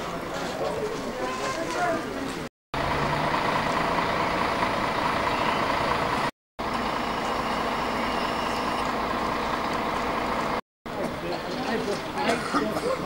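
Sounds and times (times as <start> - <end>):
bus engine idling: 2.8 - 13.0.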